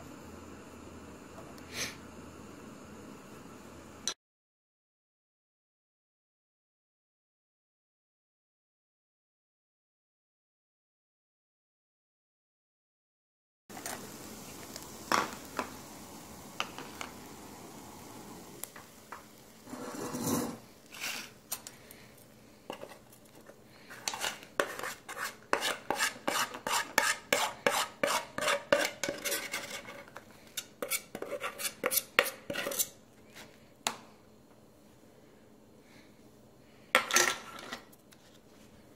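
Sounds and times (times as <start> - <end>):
steady hiss: 13.7 - 36.9
metal utensil scraping a pan: 19.6 - 21.4, 23.9 - 33.0.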